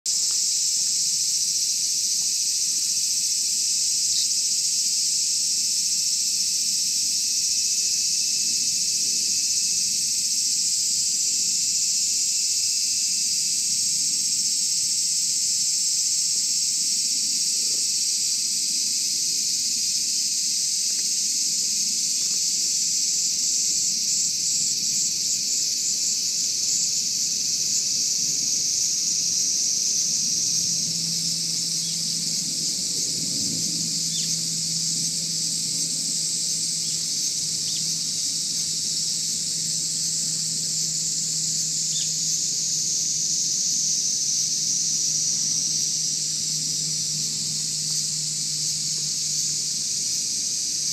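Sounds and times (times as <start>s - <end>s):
insect chorus drone: 0.1s - 50.9s.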